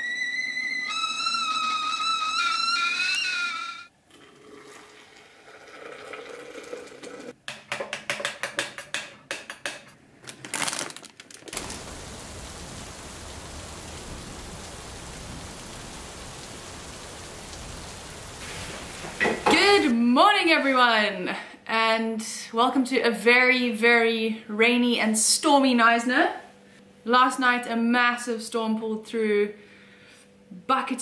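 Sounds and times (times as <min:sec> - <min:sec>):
kettle whistling: 0:00.0 - 0:03.9
water pouring into flask: 0:04.0 - 0:07.3
rain hissing: 0:11.5 - 0:19.9.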